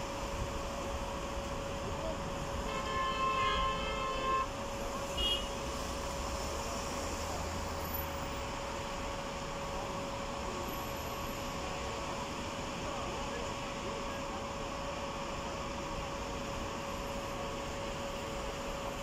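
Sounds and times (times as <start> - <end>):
traffic noise: 0.0 - 19.0
vehicle horn: 2.7 - 4.5, 5.1 - 5.6.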